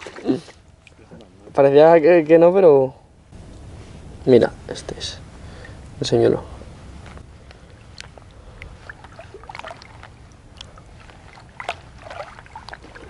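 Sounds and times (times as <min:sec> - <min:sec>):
water splashing and dripping: 0:00.0 - 0:01.0, 0:07.6 - 0:13.0.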